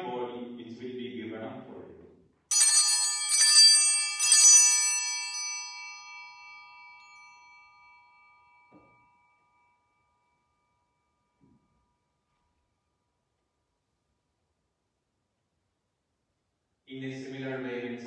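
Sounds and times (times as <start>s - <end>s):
altar bells ringing: 2.5s - 12.2s.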